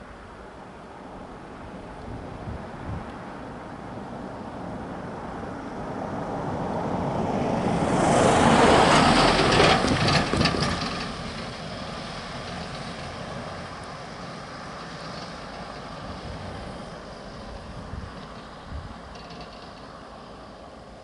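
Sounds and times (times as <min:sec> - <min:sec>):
van driving past: 0:03.4 - 0:21.0
wheels bumping over rails: 0:08.9 - 0:13.6, 0:18.2 - 0:20.3.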